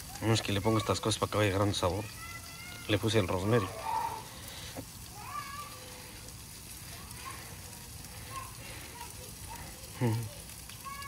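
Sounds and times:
faint voices: 0:00.0 - 0:11.0
steak sizzling: 0:00.0 - 0:11.0.

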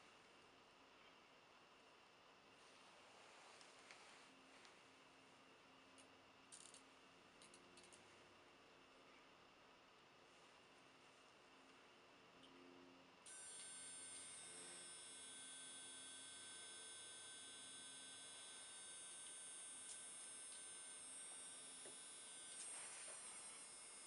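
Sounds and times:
servos high-pitched buzz: 0:13.3 - 0:24.0.

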